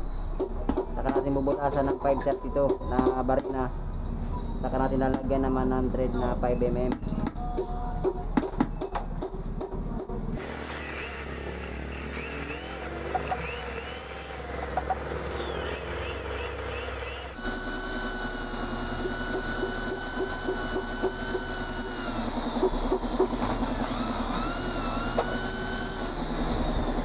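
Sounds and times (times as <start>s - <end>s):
electric drill whining: 10.3s - 17.5s.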